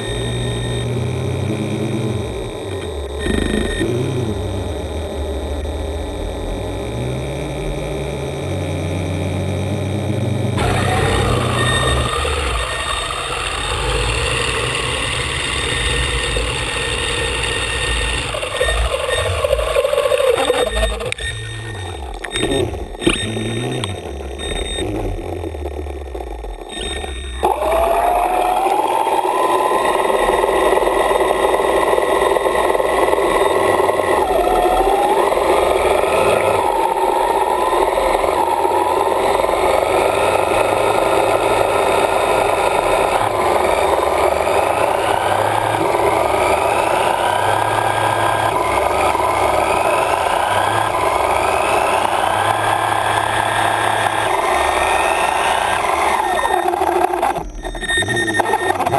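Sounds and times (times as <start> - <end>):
electric thruster motors whining underwater: 0.0 - 58.9.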